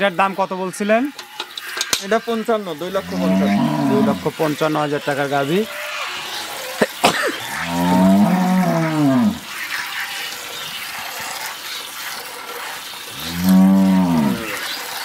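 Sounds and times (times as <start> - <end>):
cow mooing: 2.9 - 4.3, 7.4 - 9.5, 13.2 - 14.7.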